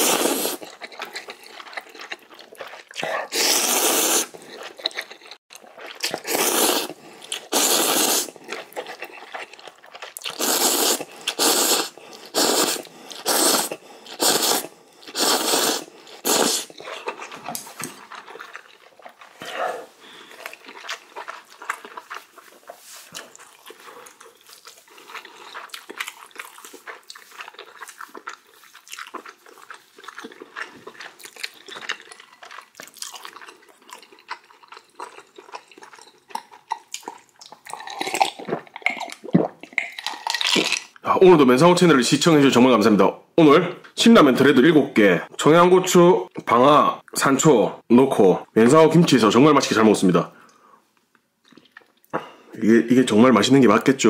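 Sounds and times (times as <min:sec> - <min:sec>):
person slurping noodles: 0:00.0 - 0:02.0, 0:02.8 - 0:09.3, 0:10.2 - 0:17.4
chewing with wet clicks: 0:00.6 - 0:03.1, 0:04.4 - 0:06.2, 0:08.4 - 0:10.4, 0:16.7 - 0:19.4, 0:20.2 - 0:41.0, 0:50.5 - 0:52.2.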